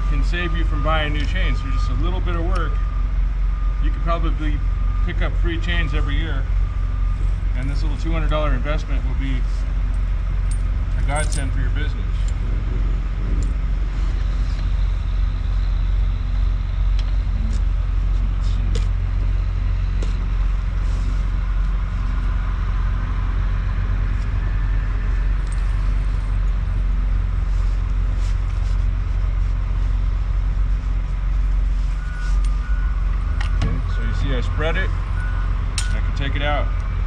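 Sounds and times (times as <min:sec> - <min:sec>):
vehicle engine idling: 0:00.0 - 0:37.0
metal chain clinking: 0:09.9 - 0:12.4.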